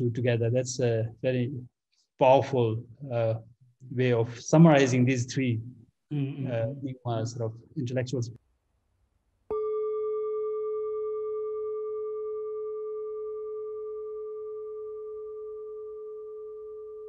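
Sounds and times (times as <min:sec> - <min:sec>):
singing bowl ringing: 0:09.5 - 0:17.0.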